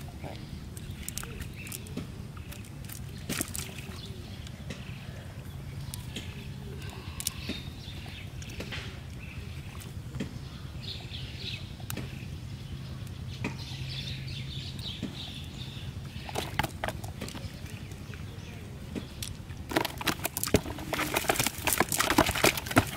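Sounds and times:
low steady hum: 0.0s - 22.9s
clicks and slaps of fish: 0.8s - 4.9s
net and wet grass rustling: 19.4s - 22.9s.

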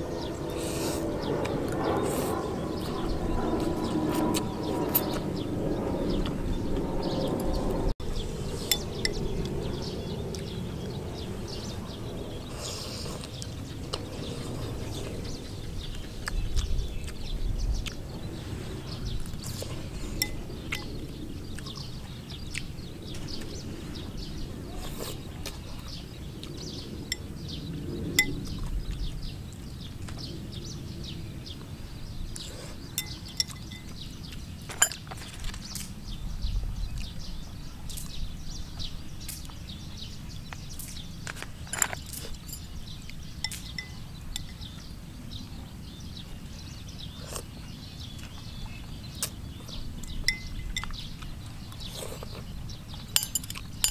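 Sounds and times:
eating sounds: 12.4s - 23.6s, 24.5s - 27.3s, 47.1s - 53.9s
metal chopsticks clinking on bowl: 20.2s - 20.9s, 33.0s - 34.0s, 53.2s - 53.9s.

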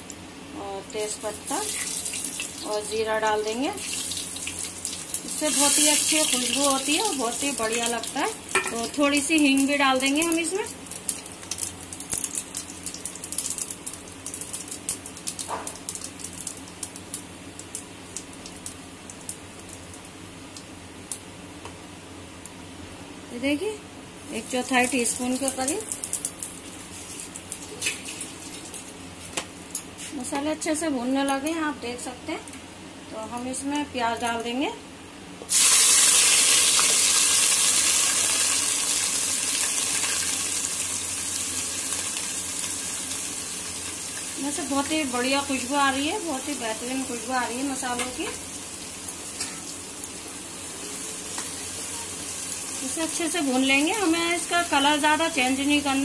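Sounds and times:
spices crackling in hot oil: 0.0s - 22.6s, 24.2s - 32.1s, 35.5s - 56.0s.

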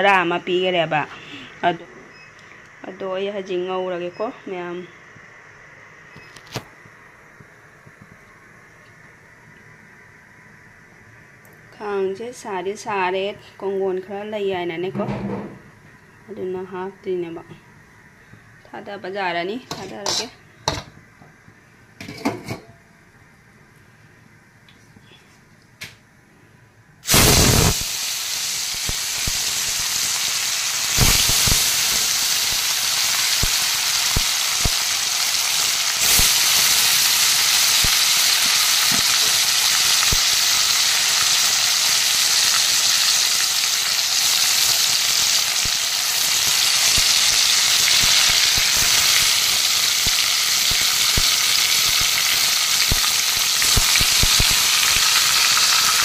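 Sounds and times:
fish sizzling in hot oil: 27.0s - 56.0s.

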